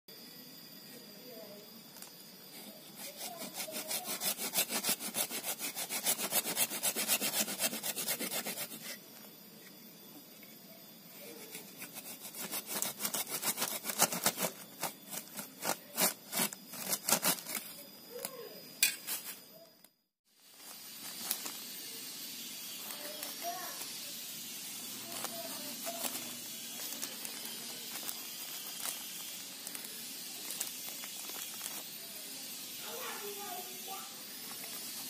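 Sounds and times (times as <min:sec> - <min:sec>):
hand saw cutting wood: 0:02.8 - 0:09.0, 0:11.4 - 0:17.7.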